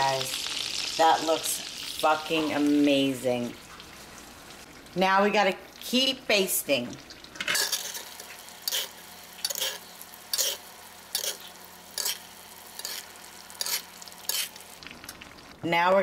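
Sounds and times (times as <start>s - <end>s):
butter and oil sizzling in skillet: 0.0s - 15.6s
metal spoon scraping and basting: 7.4s - 14.6s.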